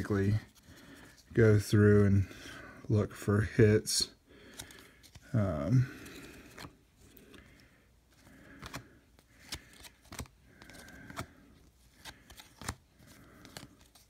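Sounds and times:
cards snapping off a stack: 12.0 - 12.8.

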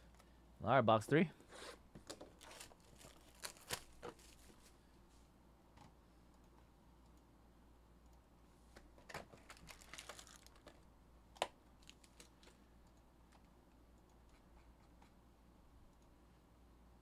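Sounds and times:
foil packs rustling: 2.3 - 4.6, 9.4 - 10.8.

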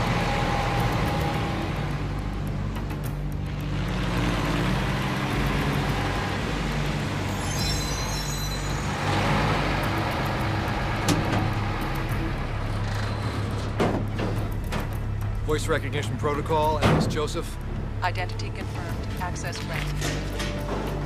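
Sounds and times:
truck engine running: 0.0 - 21.0
high brake squeal: 7.2 - 9.7.

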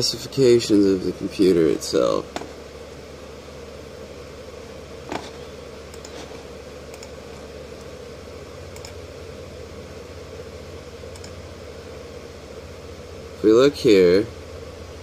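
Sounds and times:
steady background hum: 0.0 - 15.0
computer mouse clicking: 5.9 - 7.2, 8.7 - 9.0, 11.1 - 11.4.

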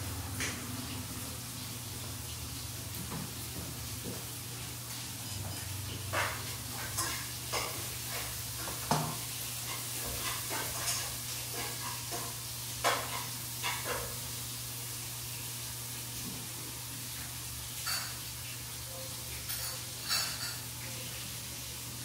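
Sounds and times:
food sizzling in a frying pan: 0.0 - 22.0
spoon clattering against pan: 19.5 - 20.6.

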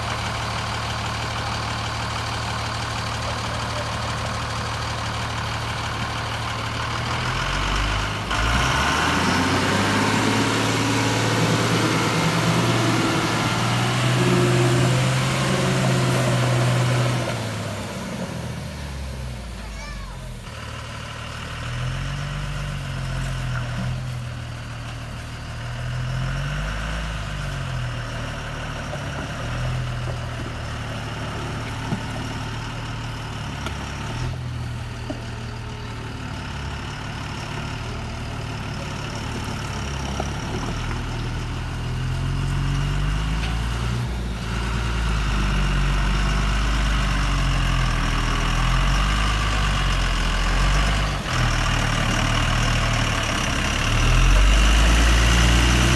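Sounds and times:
truck diesel engine revving: 0.0 - 55.9.

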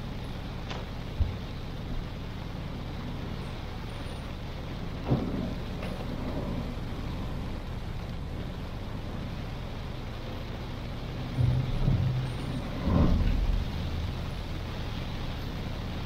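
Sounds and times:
rain hissing: 0.0 - 16.0
road noise: 0.0 - 16.0
low rumbling thumps: 4.7 - 15.7.

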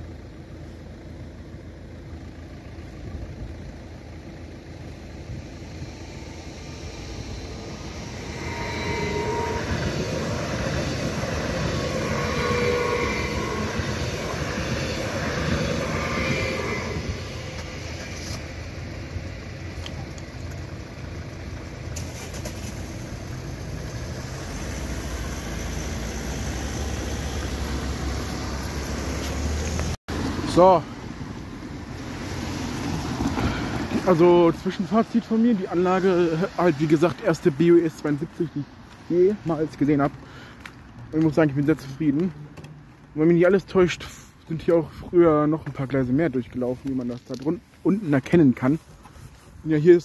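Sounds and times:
low steady rumble: 0.0 - 37.0
wavering ringing tones: 5.8 - 18.3
train wheels on rails: 7.0 - 18.6.

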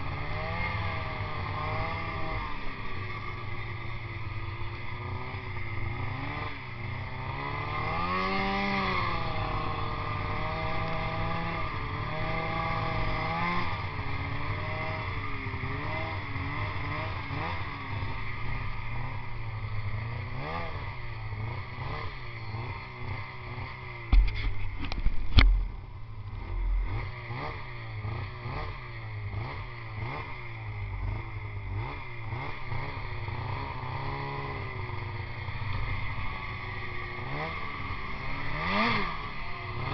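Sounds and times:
snowmobile engine revving: 0.0 - 39.9
loud thumps: 24.1 - 25.8.

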